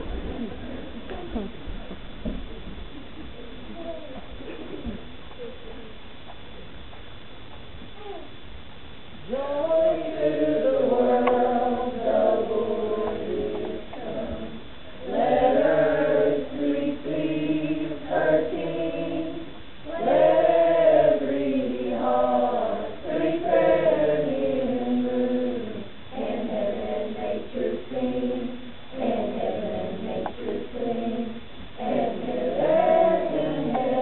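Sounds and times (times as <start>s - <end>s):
choir of children singing: 9.3s - 34.0s.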